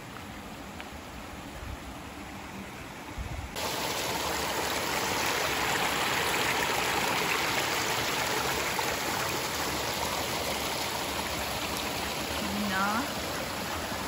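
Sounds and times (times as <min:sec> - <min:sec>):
stream babbling over rocks: 0:03.6 - 0:14.0.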